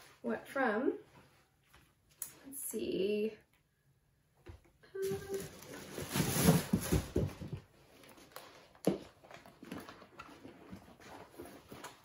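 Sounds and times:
paper and packaging rustling: 5.0s - 12.0s.

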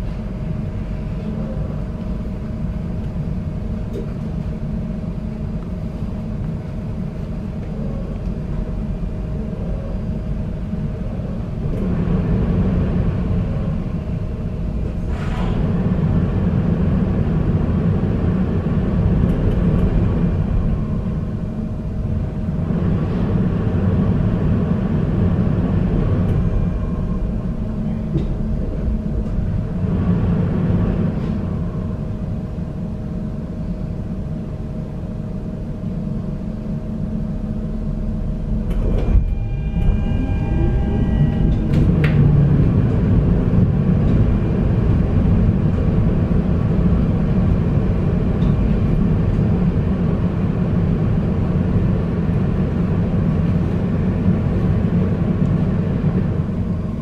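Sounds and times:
constant hum: 0.0s - 57.0s
tram wheels rumbling on rail: 0.0s - 57.0s
rising motor whine: 38.6s - 44.9s.

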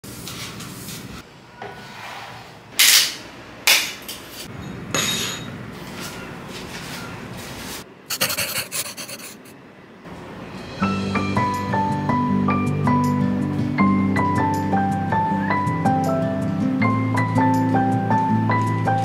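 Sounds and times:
hand brush sweeping wooden floor: 5.9s - 9.5s.

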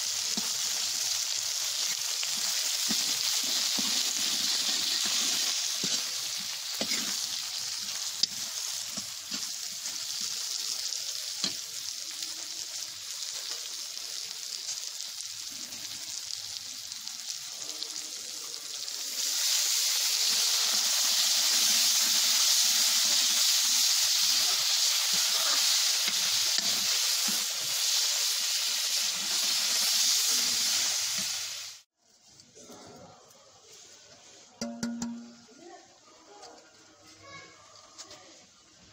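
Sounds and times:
vegetables sizzling in hot oil: 0.0s - 32.2s
metal spoon scraping a pan: 2.3s - 10.2s, 24.2s - 27.9s.

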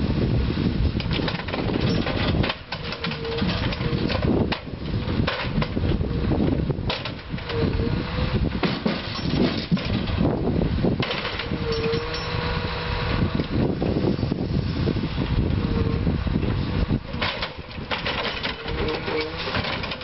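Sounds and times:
diesel engine low rumble: 0.0s - 20.0s
hydraulic whine: 11.0s - 20.0s.

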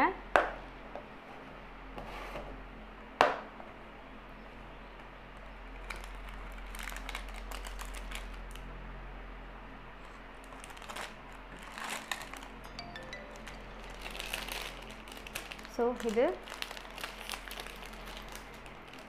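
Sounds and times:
low mains hum: 0.0s - 19.0s
plastic packet crinkling: 5.8s - 8.6s, 10.4s - 19.0s.

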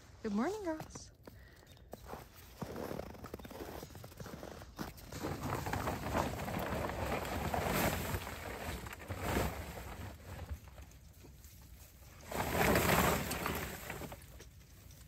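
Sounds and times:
plastic tarp rustling: 5.0s - 15.0s.

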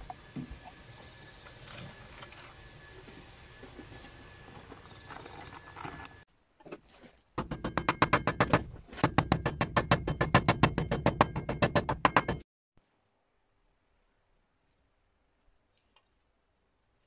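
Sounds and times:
hammer striking steel: 7.4s - 12.4s.

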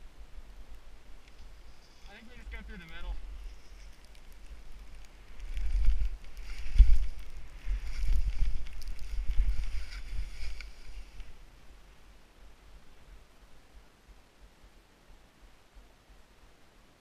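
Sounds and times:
wind rumbling on microphone: 0.0s - 13.3s
skis hissing through snow: 5.7s - 11.2s.

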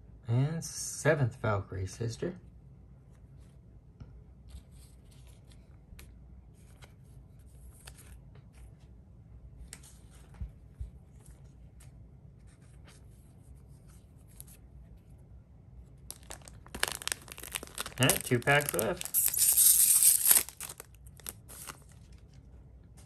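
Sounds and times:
trading cards rustling: 4.4s - 8.9s, 16.1s - 22.4s.

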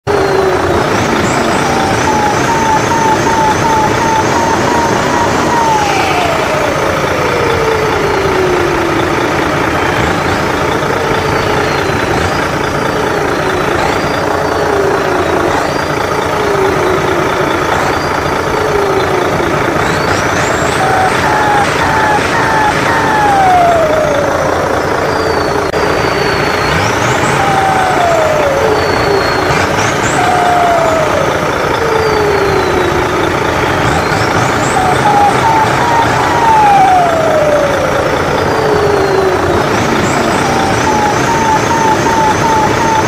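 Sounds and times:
simulated truck engine: 0.0s - 43.0s
turbo whistle rising and falling: 0.1s - 15.7s, 20.0s - 43.0s
whine gliding down: 0.1s - 43.0s.

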